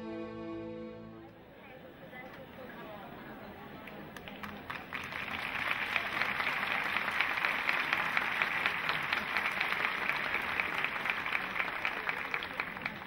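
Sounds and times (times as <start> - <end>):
audience applauding: 2.1 - 13.0.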